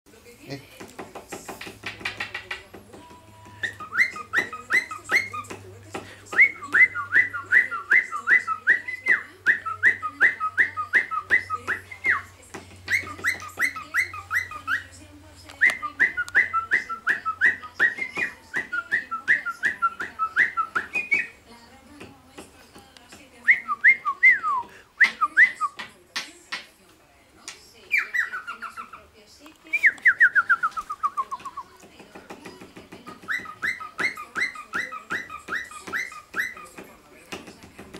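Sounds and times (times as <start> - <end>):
cockatiel whistling: 3.6 - 5.6, 6.3 - 12.3, 12.9 - 15.0, 15.6 - 21.4, 27.9 - 29.0, 33.2 - 36.8.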